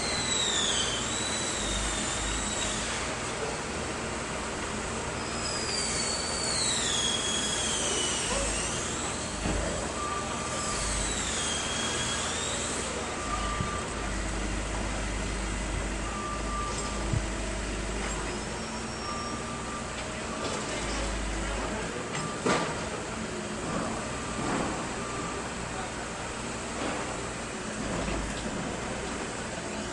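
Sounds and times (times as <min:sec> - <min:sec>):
backhoe engine rumble: 0:00.0 - 0:29.9
high metallic squealing: 0:05.2 - 0:14.2, 0:18.0 - 0:19.9
short warning beep: 0:13.0 - 0:14.3, 0:16.0 - 0:21.1.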